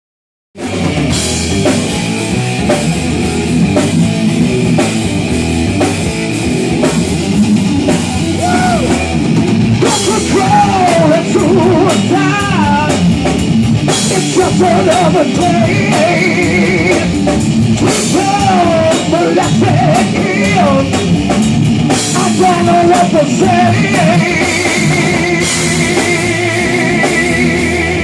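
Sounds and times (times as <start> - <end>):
bass guitar: 0.6 - 28.0
drum kit: 0.6 - 28.0
electric guitar: 0.6 - 28.0
person singing: 8.0 - 9.1, 9.8 - 13.0, 14.0 - 17.1, 17.8 - 21.0, 22.1 - 28.0.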